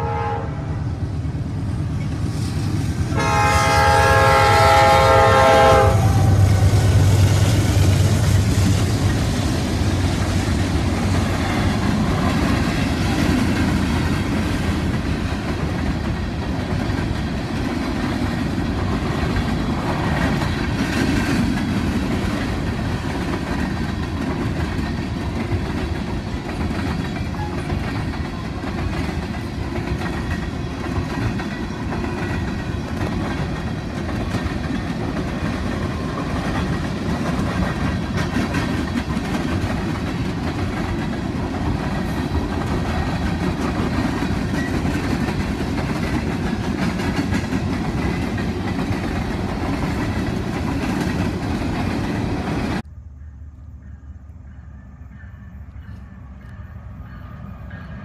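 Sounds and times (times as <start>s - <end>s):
freight train rolling past: 0.0s - 58.0s
wheels clacking over rail joints: 6.4s - 52.8s.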